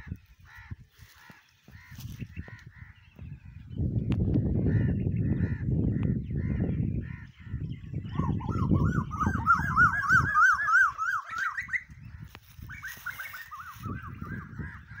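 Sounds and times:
koel calling: 0:08.2 - 0:12.0.

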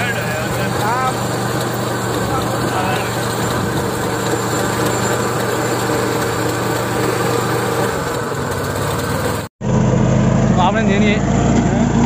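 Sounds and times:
rotary weeder churning soil: 0:00.0 - 0:10.2
tractor engine running: 0:00.0 - 0:12.0.

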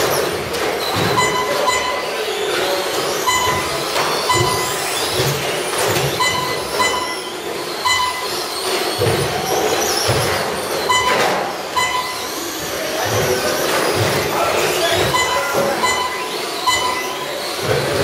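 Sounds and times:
electric rc truck motors whining: 0:02.2 - 0:15.3, 0:16.0 - 0:18.0
steady high tone: 0:06.2 - 0:08.5, 0:10.8 - 0:13.6, 0:14.3 - 0:17.4.

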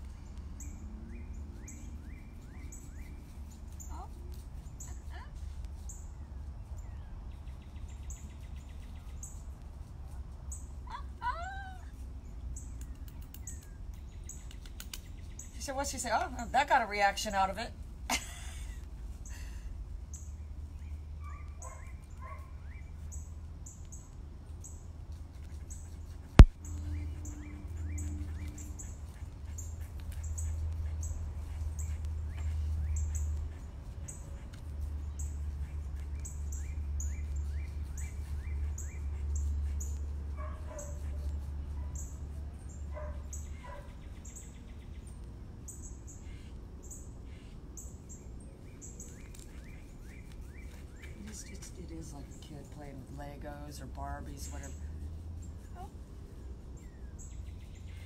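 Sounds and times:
birds chirping: 0:18.5 - 0:55.9.

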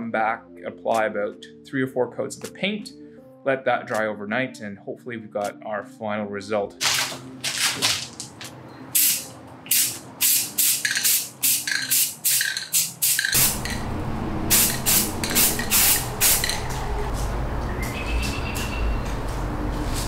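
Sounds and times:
aerosol spray can spraying: 0:09.0 - 0:13.8, 0:14.5 - 0:16.6
steady low rumble: 0:13.4 - 0:20.0.

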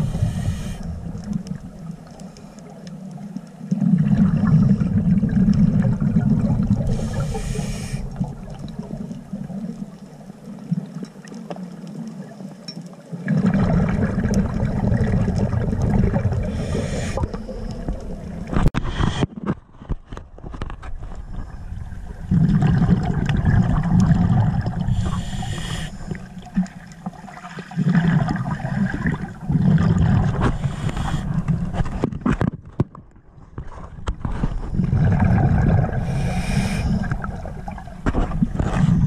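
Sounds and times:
hissing inhale through regulator: 0:00.0 - 0:01.3, 0:06.8 - 0:08.4, 0:16.4 - 0:18.0, 0:24.8 - 0:26.5, 0:30.4 - 0:31.6, 0:35.9 - 0:37.4
underwater water noise: 0:00.0 - 0:39.0
diver exhaling bubbles: 0:03.7 - 0:09.8, 0:13.2 - 0:19.2, 0:21.3 - 0:26.8, 0:27.4 - 0:31.7, 0:34.7 - 0:39.0.

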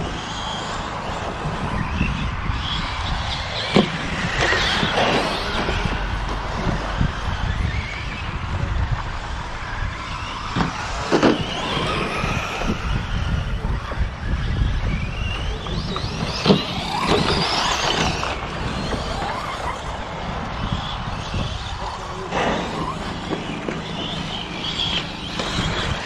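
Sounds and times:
electric motors whining: 0:00.0 - 0:26.0
low rumble: 0:02.1 - 0:10.8.

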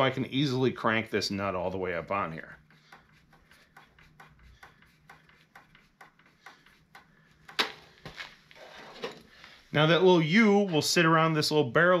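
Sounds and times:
metal nut ticking on threaded rod: 0:02.8 - 0:07.6.

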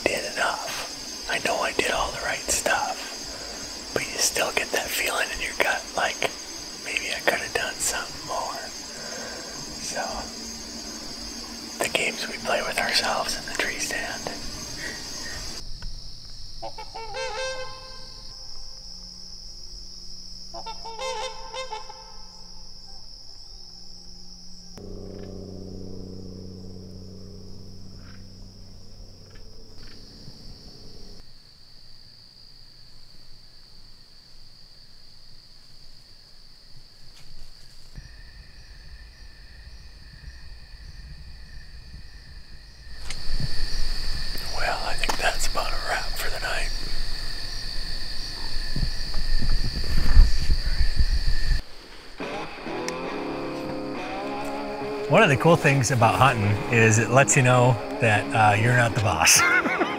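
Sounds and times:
low hum: 0:00.0 - 0:16.6, 0:17.5 - 0:31.2
crickets trilling: 0:00.0 - 0:59.9.

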